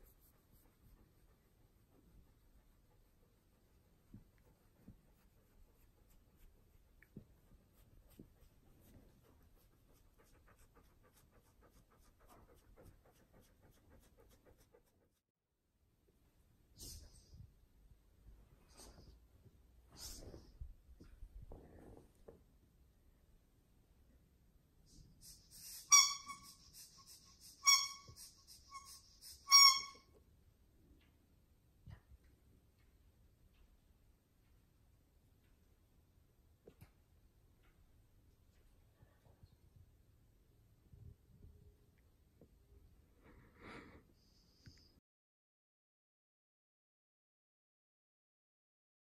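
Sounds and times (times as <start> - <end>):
dog panting: 0.0 - 15.2
squeaky toy squeaks: 25.5 - 30.2.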